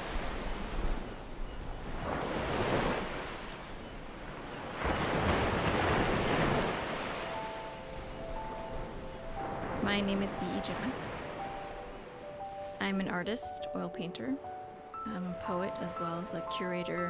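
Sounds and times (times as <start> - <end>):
ocean surf breaking on rocks: 0.0 - 12.9.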